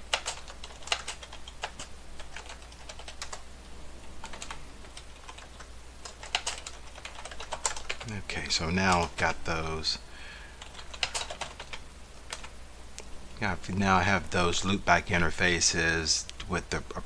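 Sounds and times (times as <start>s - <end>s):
typing on computer keyboard: 0.0s - 3.4s, 4.2s - 8.1s, 10.6s - 12.5s.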